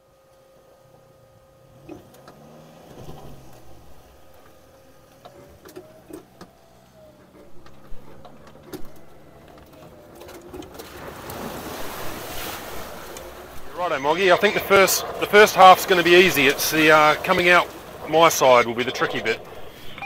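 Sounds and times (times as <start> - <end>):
low hum: 0.0 - 20.0
off-road vehicle motor whine: 0.0 - 20.0
rushing water: 7.4 - 20.0.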